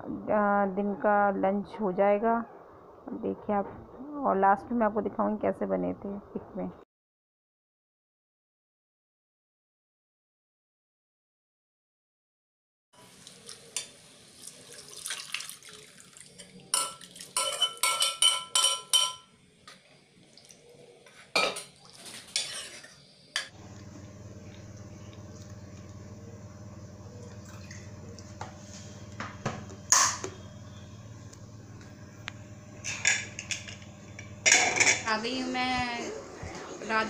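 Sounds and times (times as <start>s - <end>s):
ladle scraping metal pot: 21.4s - 23.0s
steady low hum: 23.5s - 37.0s.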